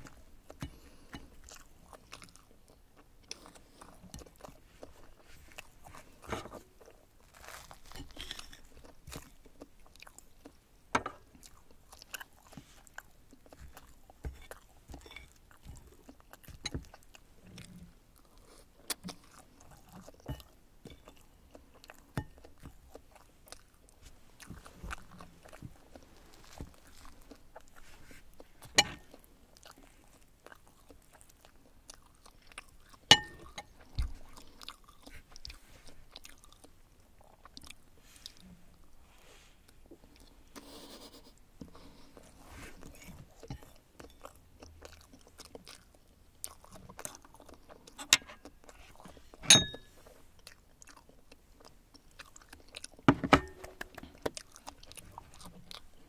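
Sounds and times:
chewing and mouth sounds: 0.0s - 38.9s, 39.6s - 56.0s
cutlery clicking on a ceramic plate: 33.1s - 33.7s, 49.5s - 49.9s.

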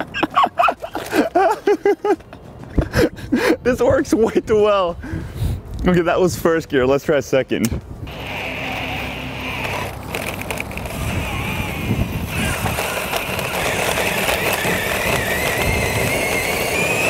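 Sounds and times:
wheels rumbling over asphalt: 0.0s - 3.3s, 8.0s - 17.0s
cordless drill motor whining: 8.1s - 17.0s.

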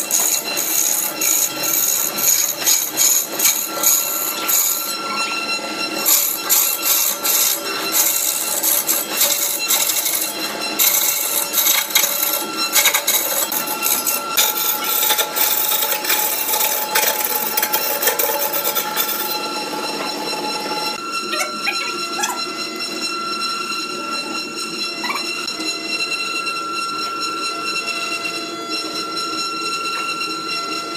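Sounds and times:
tool rasping on spinning wood: 0.0s - 5.0s, 5.9s - 19.4s
wood lathe whine: 0.0s - 30.9s.

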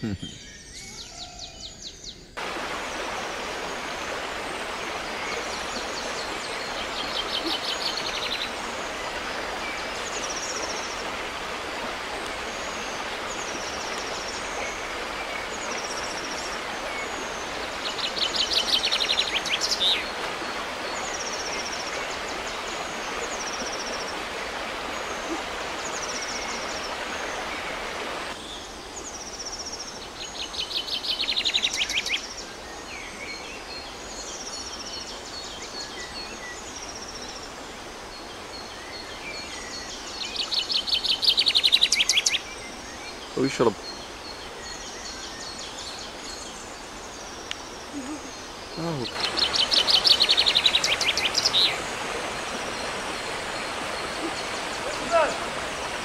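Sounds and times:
river water running over stones: 2.4s - 56.0s.

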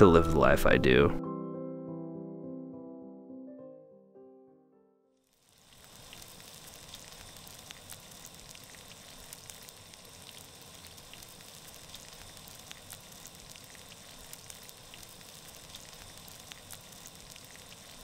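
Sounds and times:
bacon sizzling: 5.3s - 18.0s
fat popping and crackling: 5.6s - 18.0s.

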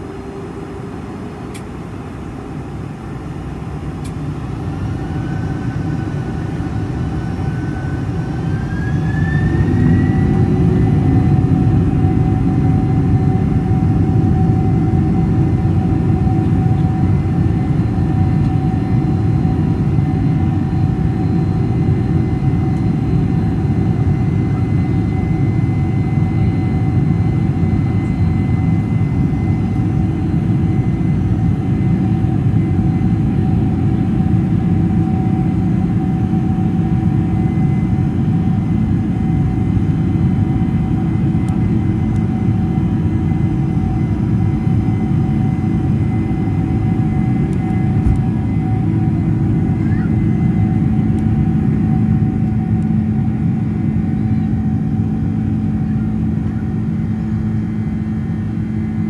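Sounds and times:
jet engines spooling up: 3.9s - 16.4s, 44.0s - 54.2s.

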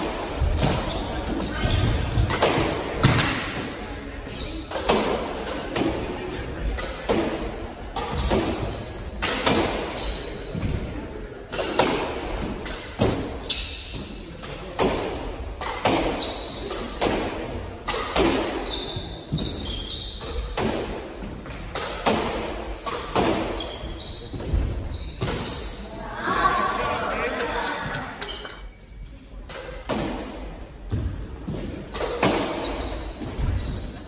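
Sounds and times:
shoes squeaking on hardwood floor: 18.6s - 21.4s, 27.8s - 29.5s, 31.5s - 34.0s.

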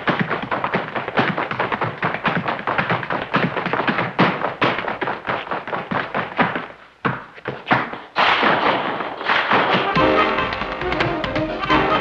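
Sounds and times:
tap shoes on wooden floor: 0.0s - 12.0s
band playing loudly: 9.9s - 12.0s.

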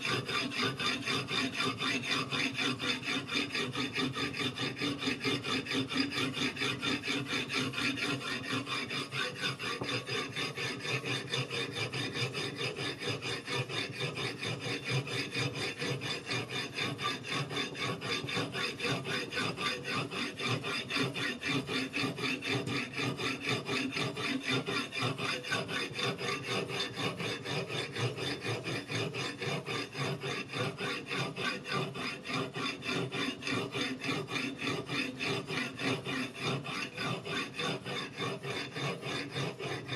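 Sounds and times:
whetstone grinding on knife edge: 8.0s - 14.6s.

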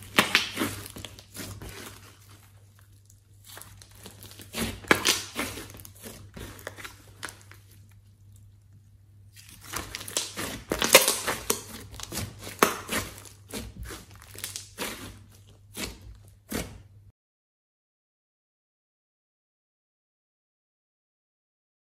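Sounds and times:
slime squishing and popping: 0.0s - 8.0s, 9.3s - 16.8s.

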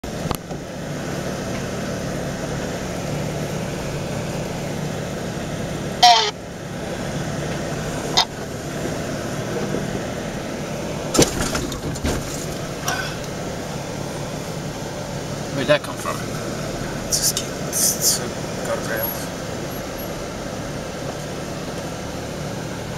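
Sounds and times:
vehicle engine running: 0.0s - 22.9s
sharp squealing creak: 6.0s - 6.4s
knocks and rattles over rocks: 11.1s - 13.0s.

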